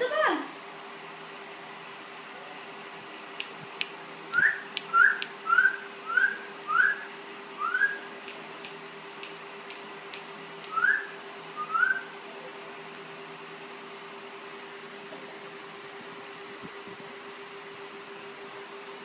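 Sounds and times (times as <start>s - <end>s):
sharp clicks: 3.4s - 5.4s, 8.2s - 10.8s.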